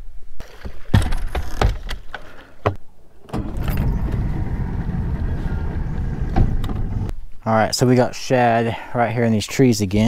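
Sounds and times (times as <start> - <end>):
outboard motor rumbling: 3.3 - 7.1.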